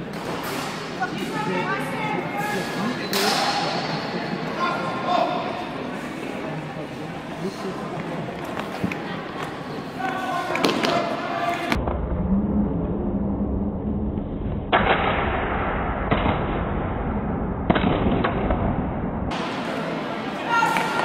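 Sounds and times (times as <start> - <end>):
voices: 0.1 - 11.8, 19.3 - 21.0
low rumble: 11.8 - 19.3.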